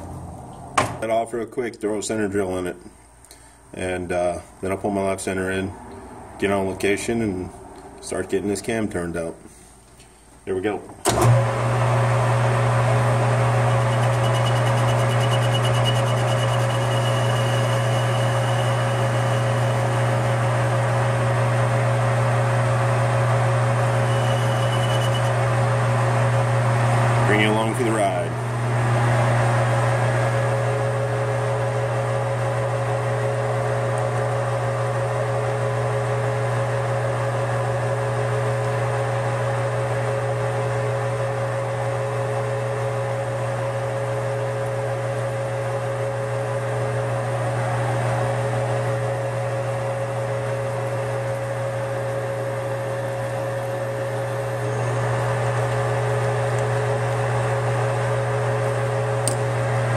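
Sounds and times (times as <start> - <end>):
metal lathe humming: 11.1 - 21.8, 22.6 - 27.1.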